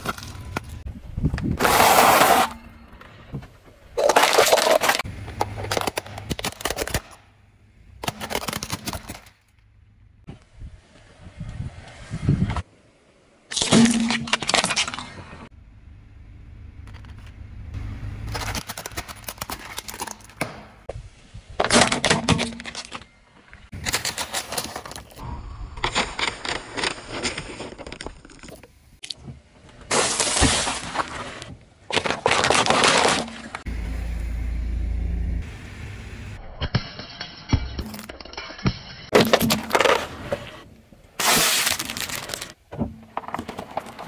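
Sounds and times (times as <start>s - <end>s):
tyre crushing plastic objects: 4.0s - 7.2s, 8.0s - 9.4s, 18.3s - 20.8s, 29.9s - 33.6s, 39.1s - 40.6s, 41.2s - 44.0s.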